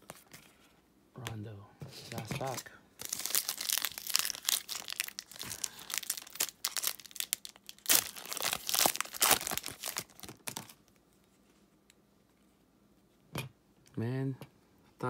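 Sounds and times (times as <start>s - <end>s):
foil wrapper crinkling and tearing: 2.5s - 10.9s.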